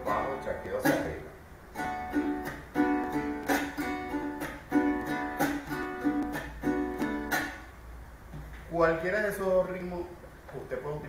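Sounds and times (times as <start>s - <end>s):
sharp muted strokes on strings: 0.0s - 7.7s
strummed string instrument: 0.0s - 7.7s.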